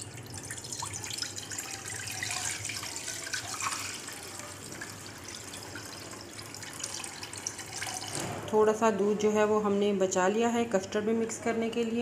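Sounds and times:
milk pouring into a pan: 0:00.3 - 0:08.2.

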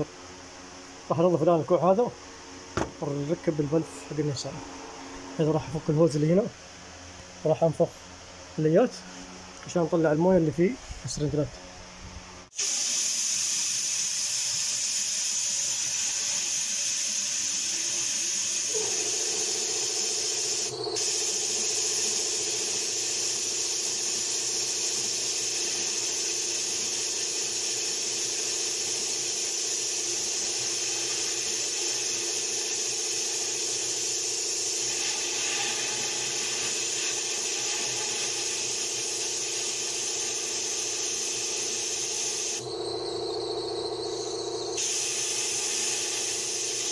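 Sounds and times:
loud air hiss: 0:12.5 - 0:42.7, 0:44.8 - 0:46.9.

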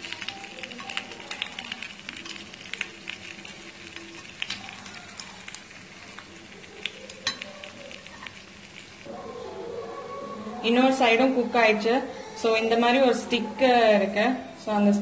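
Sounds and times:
oil sizzling and crackling: 0:00.0 - 0:09.5.

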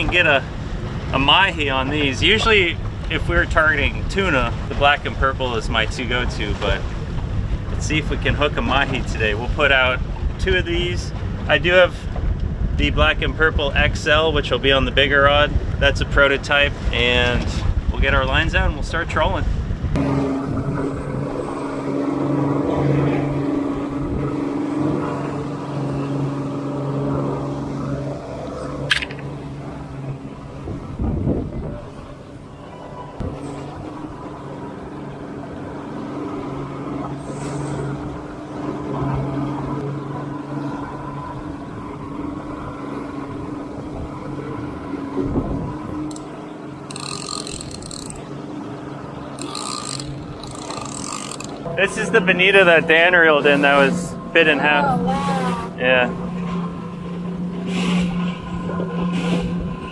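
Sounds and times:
boat engine droning: 0:00.0 - 0:59.9
sharp click: 0:28.9 - 0:29.3.

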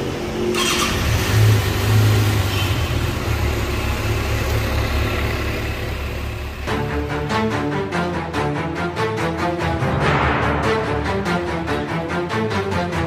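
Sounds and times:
motorcycle engine starting and idling: 0:00.0 - 0:07.3
motorcycle engine revving: 0:00.3 - 0:07.3.

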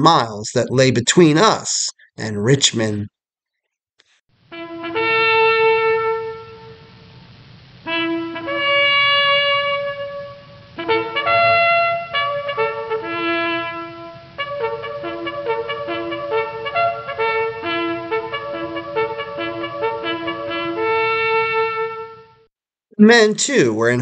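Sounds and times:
trumpet led brass music: 0:04.5 - 0:07.1, 0:07.8 - 0:22.5.

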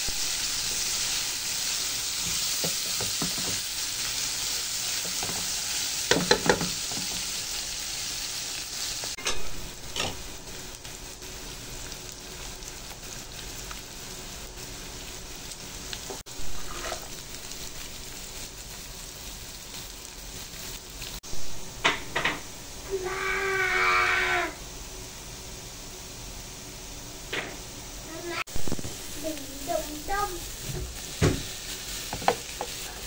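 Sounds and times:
chicken sizzling in hot oil: 0:00.0 - 0:33.0
spatula scraping pan: 0:16.4 - 0:18.1.

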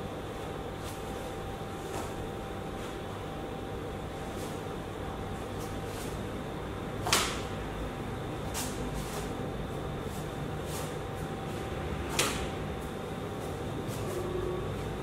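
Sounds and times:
room hum: 0:00.0 - 0:15.0
sharp snaps of kicks: 0:07.0 - 0:07.6, 0:12.1 - 0:12.6.

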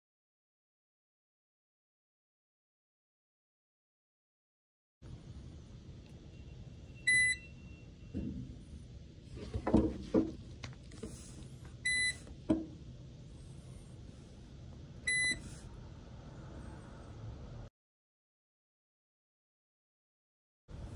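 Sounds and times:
short electronic beeps: 0:06.3 - 0:07.9, 0:15.1 - 0:15.4
dull knocks: 0:09.4 - 0:10.4.

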